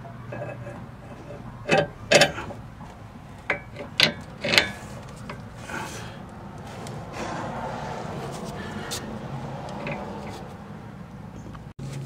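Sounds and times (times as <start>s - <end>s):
metal clacks and scrapes: 0.3s - 7.4s, 9.7s - 10.6s.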